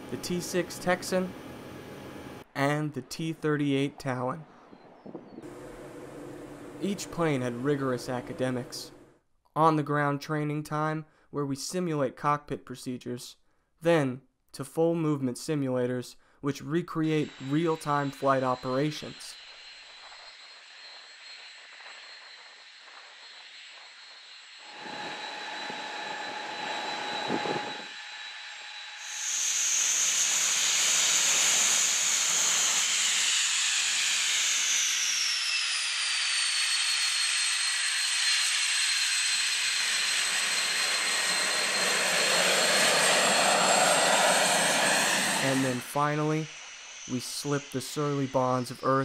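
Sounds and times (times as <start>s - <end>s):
jet engines whining: 0.0s - 2.5s, 4.9s - 9.2s, 16.9s - 49.0s.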